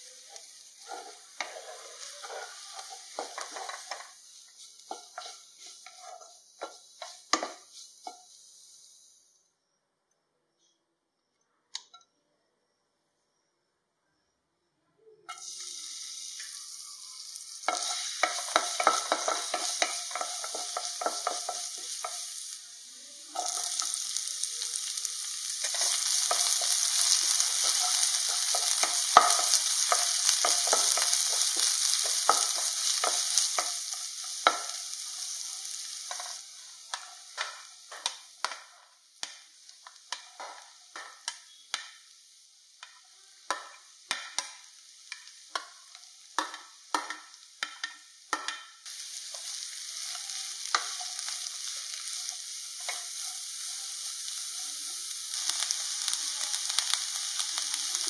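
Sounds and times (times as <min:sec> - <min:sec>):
spatula scraping a pan: 0:00.0 - 0:08.9, 0:17.6 - 0:22.4, 0:25.4 - 0:42.1
hot oil sizzling in a wok: 0:00.0 - 0:09.5, 0:15.3 - 0:58.0.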